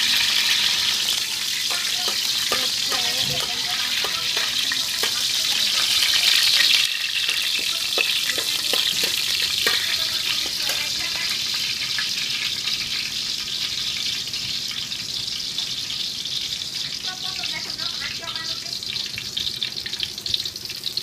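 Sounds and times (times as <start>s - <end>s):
spatula clinking and scraping wok: 0.0s - 11.2s
oil sizzling in a wok: 0.0s - 21.0s.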